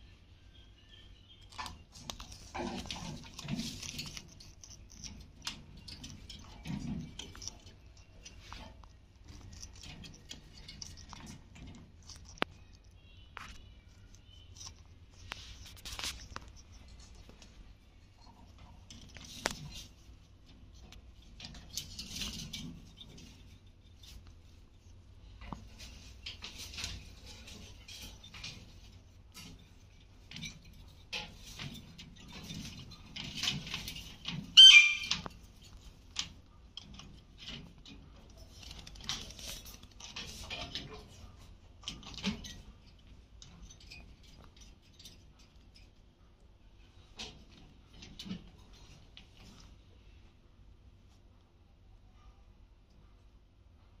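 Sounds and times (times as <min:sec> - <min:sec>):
rustling in a cage: 0:00.0 - 0:54.0
parakeets pecking and crunching: 0:00.5 - 0:51.3
parrot squawk: 0:34.6 - 0:35.1.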